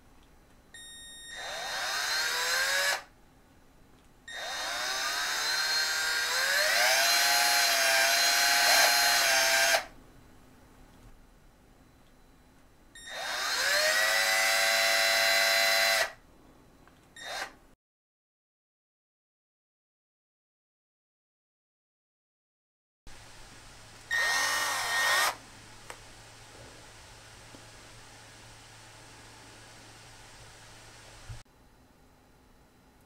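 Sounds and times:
cordless drill driving screws: 0:01.4 - 0:03.1, 0:04.3 - 0:09.9, 0:13.0 - 0:16.2, 0:17.2 - 0:17.6, 0:24.1 - 0:25.4.

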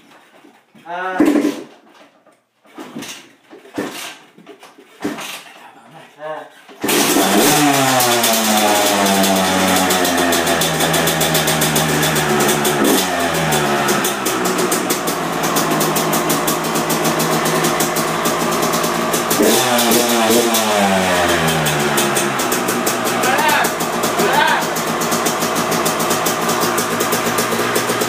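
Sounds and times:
dirt bike engine revving: 0:06.8 - 0:28.0.

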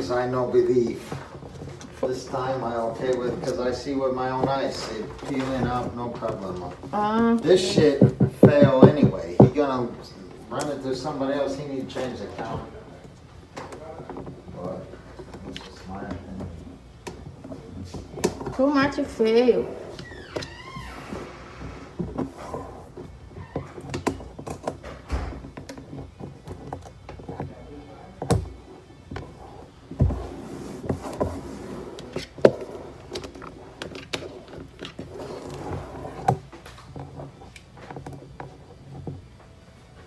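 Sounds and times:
hands rubbing contact paper: 0:00.0 - 0:09.8, 0:28.6 - 0:39.4
knocks and taps on countertop: 0:07.6 - 0:09.6.

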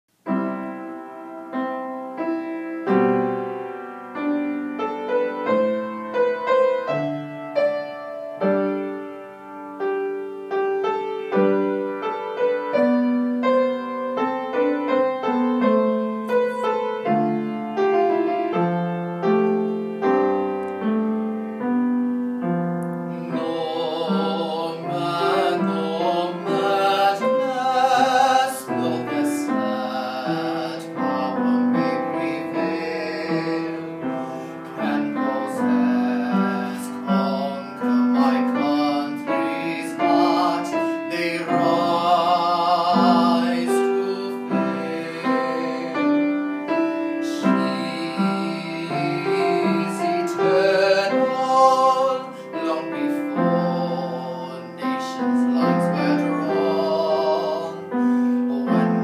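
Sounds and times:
piano playing notes and chords: 0:00.1 - 0:59.0
man singing with vibrato: 0:23.0 - 0:59.0.

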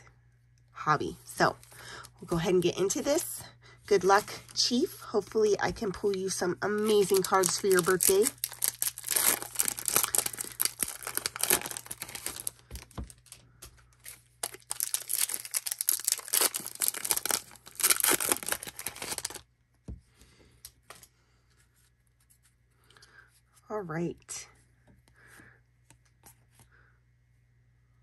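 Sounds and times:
foil wrapper tearing and crinkling: 0:06.8 - 0:19.4
faint handling sounds: 0:18.5 - 0:23.7.

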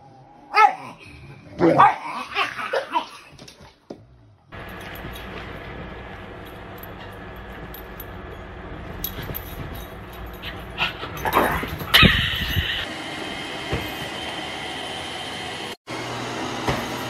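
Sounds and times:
small dog whimpering and yipping: 0:11.8 - 0:12.8.

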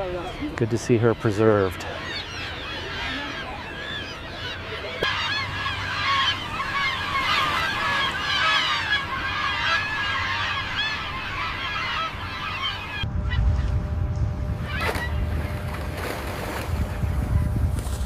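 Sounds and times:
flock of birds calling: 0:00.0 - 0:13.7, 0:14.6 - 0:16.3
low background rumble: 0:12.0 - 0:18.0.

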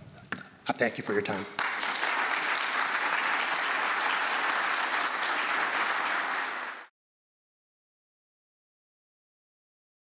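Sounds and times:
audience applauding: 0:01.6 - 0:06.9.

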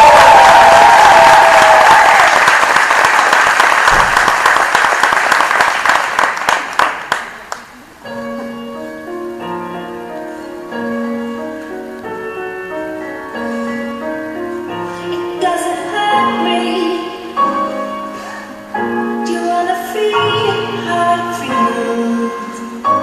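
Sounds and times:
audience applauding: 0:00.0 - 0:07.8
slow music with held notes: 0:08.0 - 0:23.0.

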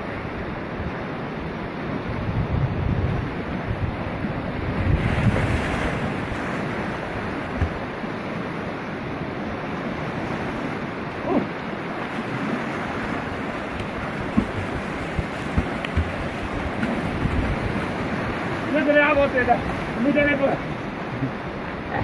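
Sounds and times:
fast river water rushing: 0:00.0 - 0:22.0
man diving into water splash: 0:11.2 - 0:18.6.

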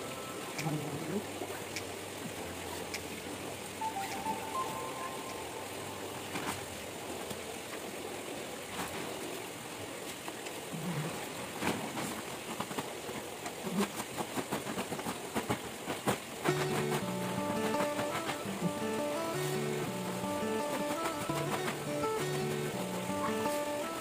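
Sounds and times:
plastic tarp crinkling: 0:14.6 - 0:24.0.

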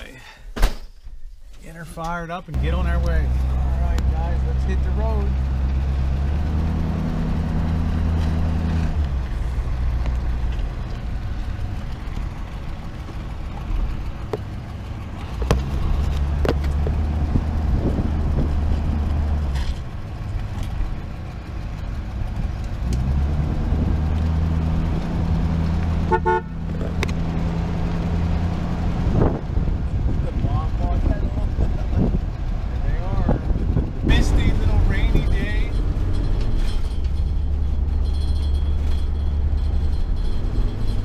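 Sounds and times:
vehicle engine droning: 0:02.0 - 0:41.0
horn toot: 0:26.1 - 0:26.6.

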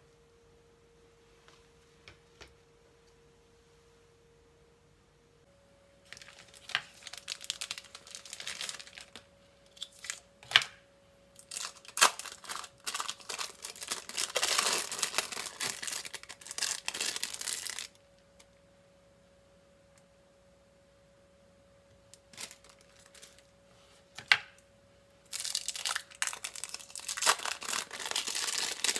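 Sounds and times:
plastic film crinkling: 0:06.0 - 0:10.3, 0:11.4 - 0:18.5, 0:22.2 - 0:23.5, 0:25.3 - 0:28.9.

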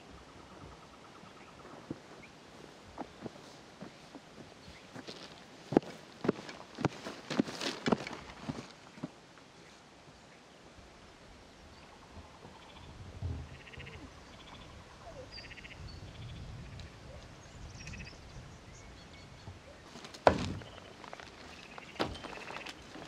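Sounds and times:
frogs calling in rattling trills: 0:11.8 - 0:12.9, 0:13.5 - 0:16.3.

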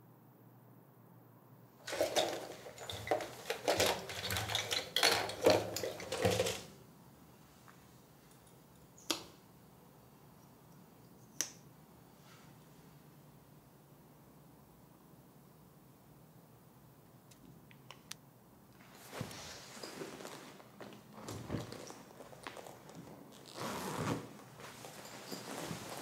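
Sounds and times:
bottles and jars clattering: 0:01.8 - 0:06.7.

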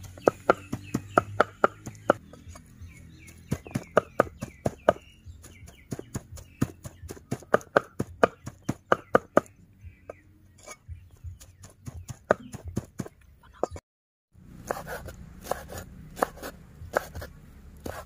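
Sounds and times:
knife chopping meat on wooden block: 0:00.2 - 0:02.6, 0:03.3 - 0:09.5, 0:14.7 - 0:18.0.

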